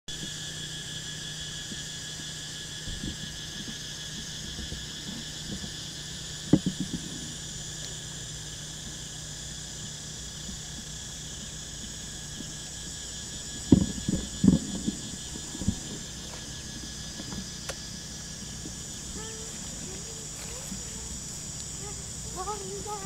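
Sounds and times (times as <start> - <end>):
crickets trilling: 0.1 - 23.0
low thumps: 6.4 - 7.5, 13.2 - 23.0.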